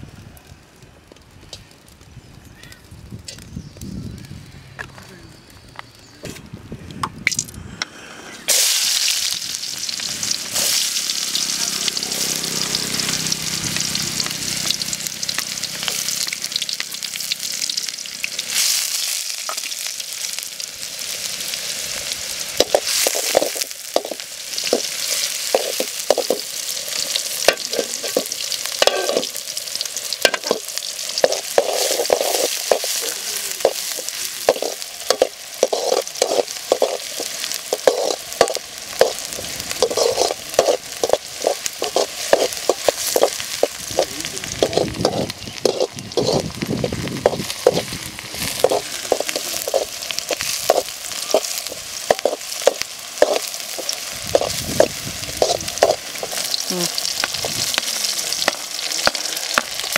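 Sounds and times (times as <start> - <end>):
onions sizzling in hot oil: 8.5 - 59.9
metal spoon scraping a bowl: 27.6 - 29.3, 34.5 - 39.2, 39.8 - 43.4, 44.0 - 46.5, 48.6 - 49.9.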